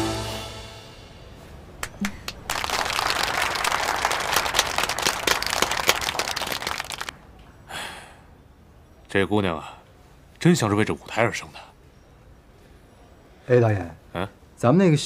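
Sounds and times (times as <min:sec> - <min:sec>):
audience clapping: 0:01.8 - 0:07.1.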